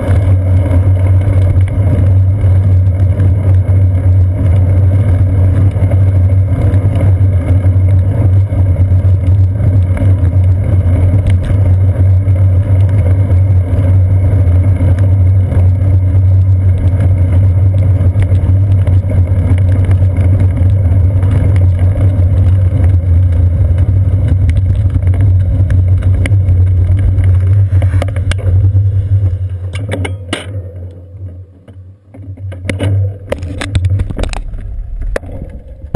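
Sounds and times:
wind buffeting camera: 0.0 - 30.9, 32.4 - 35.9
knocks and rattles: 24.3 - 35.9.

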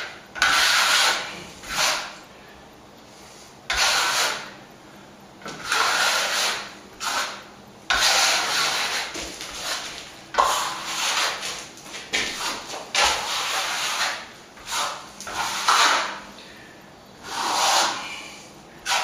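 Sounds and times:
trowel scraping cement: 0.4 - 2.2, 3.7 - 4.6, 5.5 - 16.2, 17.2 - 19.0.

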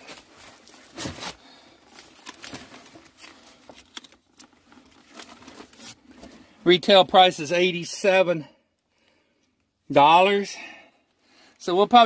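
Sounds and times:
plastic packaging crinkling: 0.0 - 6.5.

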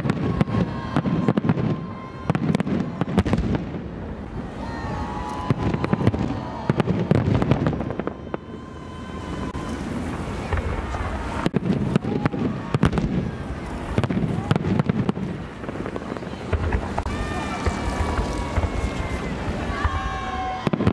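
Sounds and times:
firework booms: 0.0 - 20.9
fireworks crackling and popping: 0.0 - 20.9.

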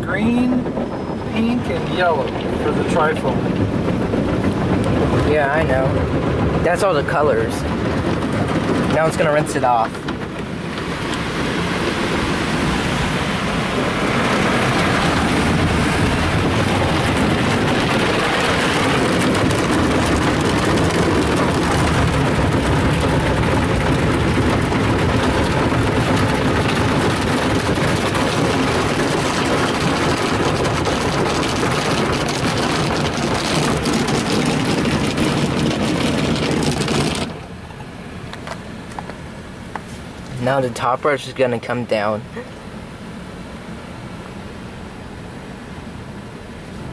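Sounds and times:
water spraying onto car: 0.8 - 38.1.

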